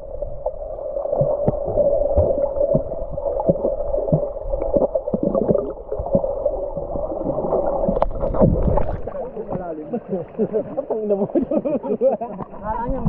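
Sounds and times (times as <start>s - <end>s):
underwater river gurgling: 0.0s - 13.0s
small knocks and bubbles: 1.0s - 9.6s.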